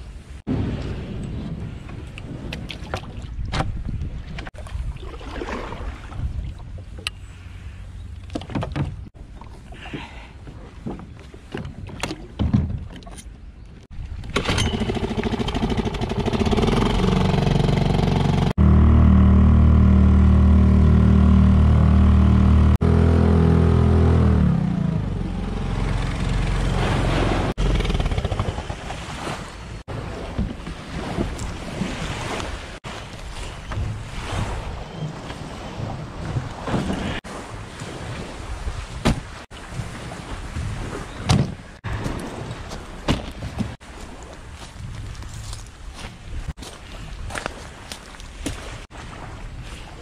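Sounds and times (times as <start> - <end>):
water noise: 0.0 - 50.0
wind: 0.0 - 50.0
outboard motor running: 14.4 - 29.1.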